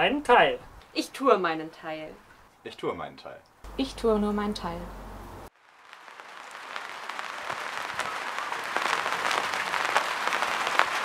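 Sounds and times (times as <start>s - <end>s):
audience applause: 6.0s - 11.0s.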